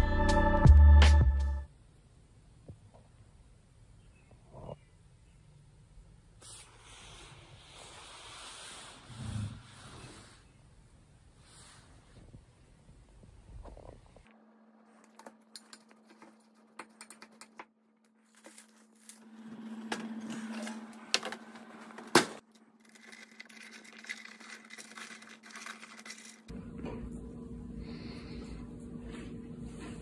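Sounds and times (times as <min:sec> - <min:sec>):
steady low hum: 0:14.1 - 0:30.0
utensils scraping and clinking: 0:18.4 - 0:26.5.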